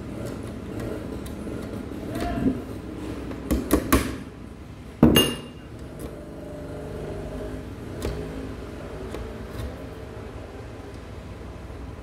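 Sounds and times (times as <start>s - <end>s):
metallic clank: 5.0s - 5.7s.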